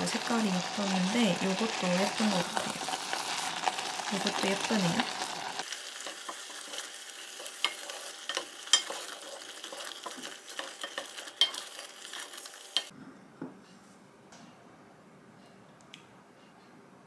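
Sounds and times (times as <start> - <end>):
wooden spoon stirring soup: 6.0 - 12.9.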